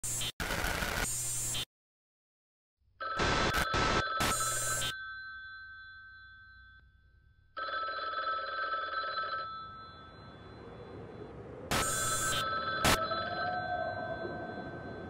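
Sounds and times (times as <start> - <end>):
ringing tone: 4.0 - 15.0.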